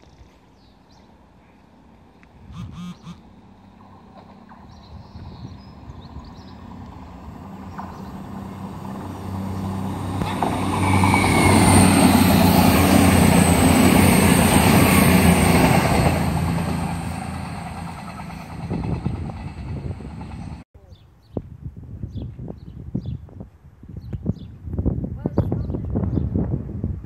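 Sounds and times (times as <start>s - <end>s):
diesel train engine drone: 1.8s - 20.6s
train wheels rushing on rails: 3.8s - 20.6s.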